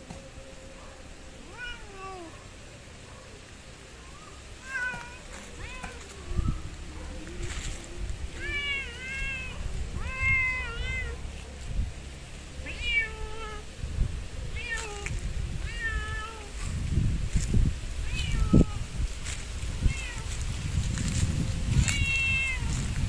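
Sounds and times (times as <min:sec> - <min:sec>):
cat meowing: 0:01.5 - 0:02.4, 0:04.0 - 0:06.6, 0:08.3 - 0:11.2, 0:12.6 - 0:13.7, 0:14.5 - 0:16.5, 0:18.0 - 0:18.8, 0:19.8 - 0:20.4, 0:21.8 - 0:23.0.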